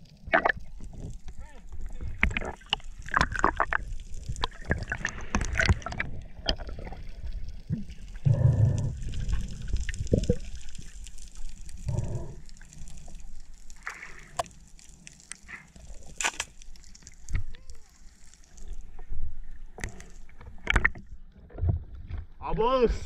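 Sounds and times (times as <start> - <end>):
underwater clicks and knocks: 19.7 - 22.4.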